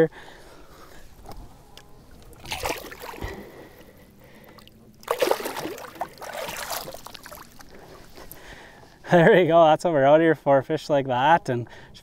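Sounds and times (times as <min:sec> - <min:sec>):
fish splashing: 0:02.1 - 0:08.4
water splashing against boat: 0:02.1 - 0:08.4.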